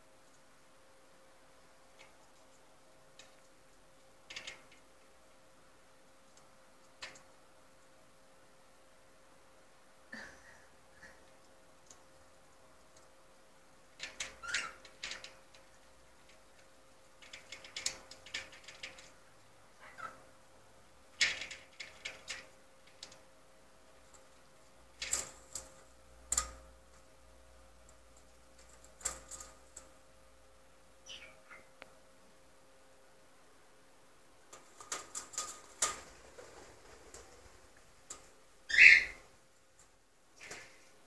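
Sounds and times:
bird claws clicking on metal rail: 14.0s - 19.2s, 21.2s - 23.2s, 25.0s - 27.0s, 28.2s - 29.9s, 34.5s - 38.3s
cockatiel chirps: 19.8s - 20.2s, 31.0s - 31.7s, 38.7s - 39.2s.

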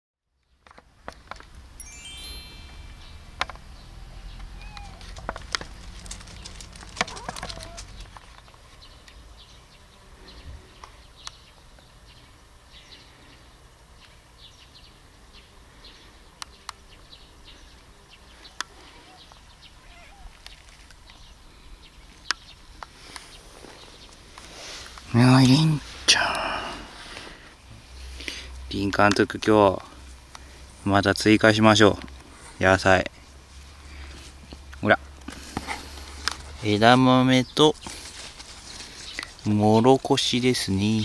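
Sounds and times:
faint bird calls: 4.1s - 5.2s, 7.0s - 8.1s, 15.4s - 24.8s
sharp clicks and ticks: 5.0s - 8.3s.

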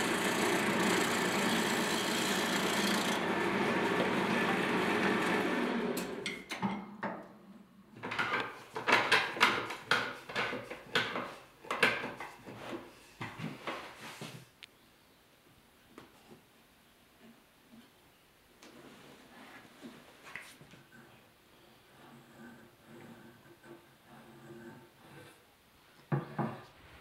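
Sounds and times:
turning tool cutting hiss: 0.0s - 6.1s
wood lathe whirring: 0.0s - 6.3s.

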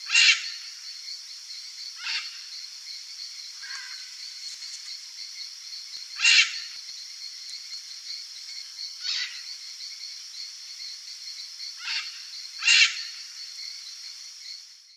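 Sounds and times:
high insect drone: 0.0s - 14.9s
macaws squawking: 11.8s - 13.1s.

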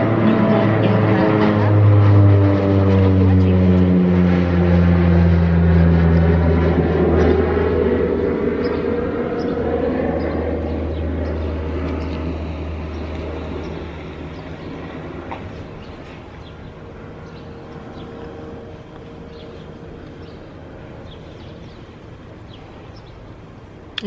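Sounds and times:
airplane engine drone: 0.0s - 24.0s.

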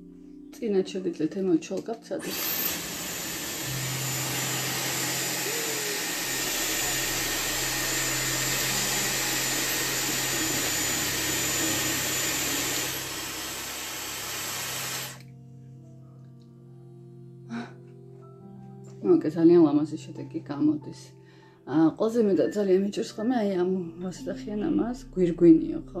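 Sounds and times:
hair styler blowing air: 2.2s - 15.2s.

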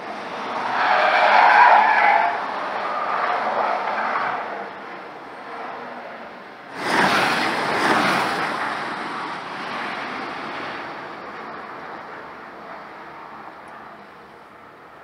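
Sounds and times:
car passing with tyre and wind noise: 0.0s - 15.0s.

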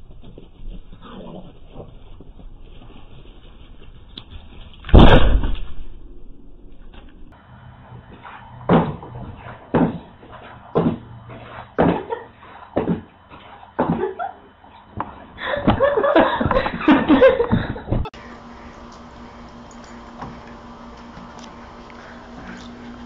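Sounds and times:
low hum: 0.0s - 23.0s
person laughing loudly: 13.8s - 14.5s, 15.3s - 18.1s.

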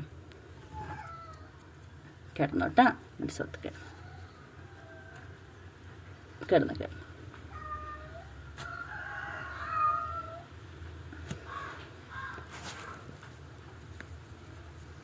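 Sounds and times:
cat meowing: 7.5s - 8.4s, 9.6s - 10.5s.

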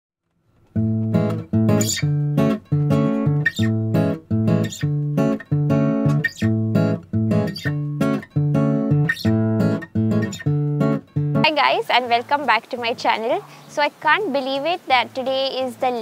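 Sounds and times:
strummed acoustic guitar chords: 0.7s - 11.7s.

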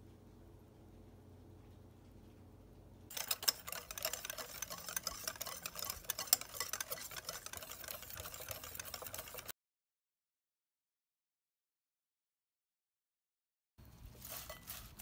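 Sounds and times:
batter stirred in a bowl: 3.1s - 9.5s, 13.8s - 15.0s
utensil clicking against bowl: 3.1s - 9.5s.

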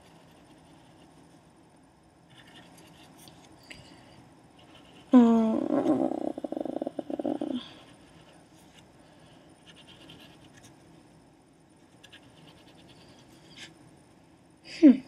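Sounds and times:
pencil scratching on paper: 0.0s - 1.1s, 9.6s - 10.7s, 12.0s - 13.7s.

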